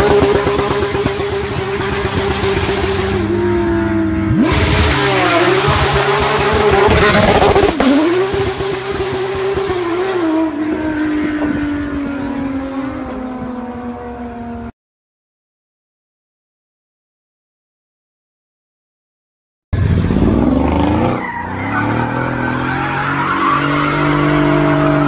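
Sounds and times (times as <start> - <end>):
race car engines: 0.0 - 14.7, 19.8 - 25.0.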